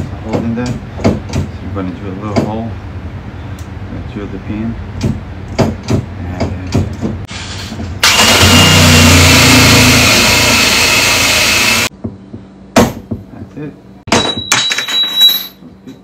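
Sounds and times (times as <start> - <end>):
sharp knocks and clicks: 0.3 - 1.5, 5.0 - 7.3, 11.9 - 13.3
cordless drill boring metal: 8.0 - 11.9.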